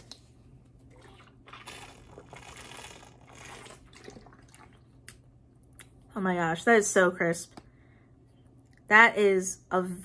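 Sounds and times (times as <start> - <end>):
person sipping and swallowing: 0.9 - 5.2.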